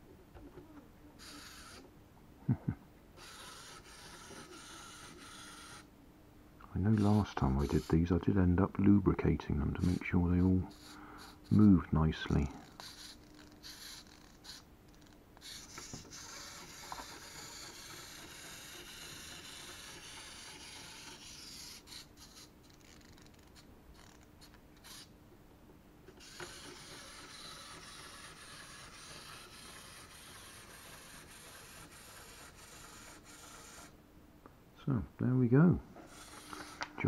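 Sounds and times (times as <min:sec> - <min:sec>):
clockwork motor whirring: 0:01.2 - 0:01.9, 0:03.2 - 0:05.9, 0:10.8 - 0:25.1, 0:26.2 - 0:33.9, 0:36.0 - 0:37.0.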